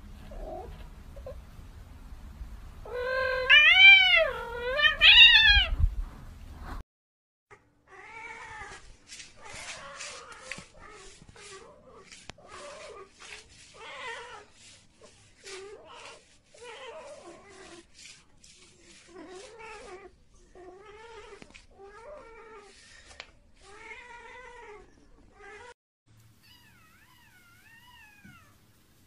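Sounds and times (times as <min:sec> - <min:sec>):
cat yowling: 0:02.9 - 0:05.8.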